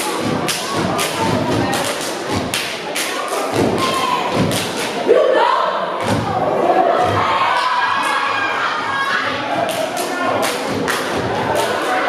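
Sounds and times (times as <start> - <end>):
hand claps: 0.4 - 5.0, 9.7 - 12.0.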